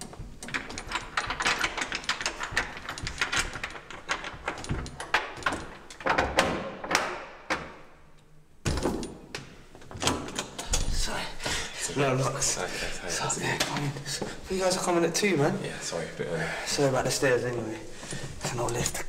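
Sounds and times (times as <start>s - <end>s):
door locks clicking and rattling: 0.0s - 11.0s.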